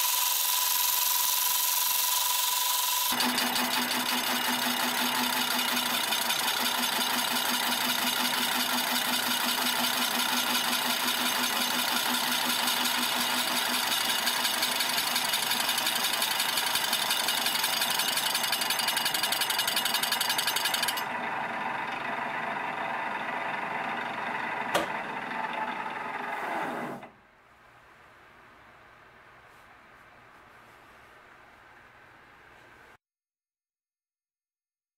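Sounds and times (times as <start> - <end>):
saw blade cutting metal: 0.0 - 21.1
lathe running: 0.0 - 27.1
lathe winding down: 0.0 - 27.1.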